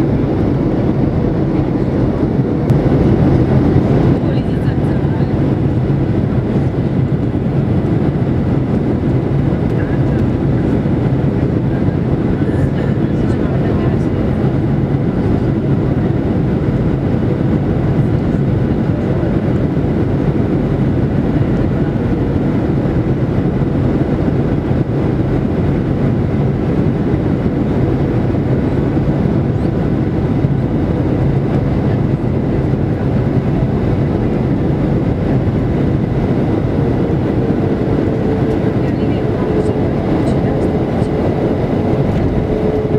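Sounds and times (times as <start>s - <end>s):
rushing air: 0.0s - 13.0s, 32.5s - 42.9s
faint whine: 0.0s - 42.9s
jet engine rumble: 0.0s - 42.9s.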